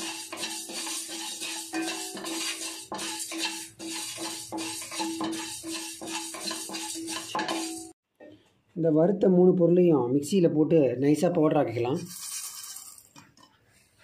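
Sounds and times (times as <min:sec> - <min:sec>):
spatula stirring grains in pan: 0:00.0 - 0:08.0, 0:12.0 - 0:14.0.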